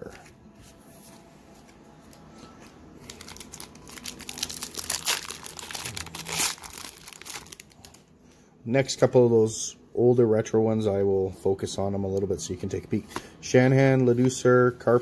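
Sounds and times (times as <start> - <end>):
foil wrapper crinkling and tearing: 3.0 - 8.0.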